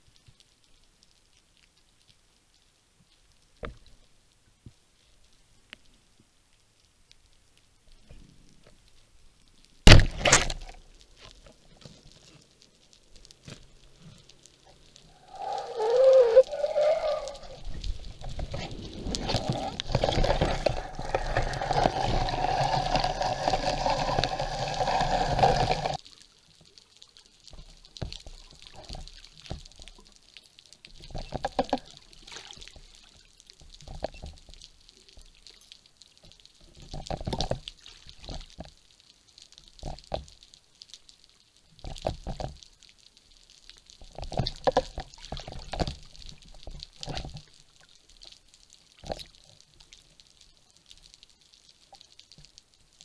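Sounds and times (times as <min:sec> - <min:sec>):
water sloshing: 0:13.9 - 0:26.0
loud dense underwater rush: 0:15.0 - 0:26.0.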